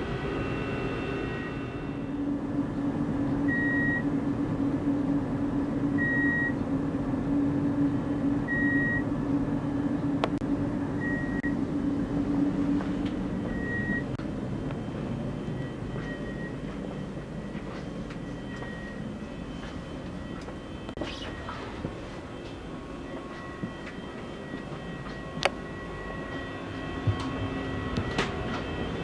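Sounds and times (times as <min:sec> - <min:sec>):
train equipment hum: 0:00.0 - 0:29.0.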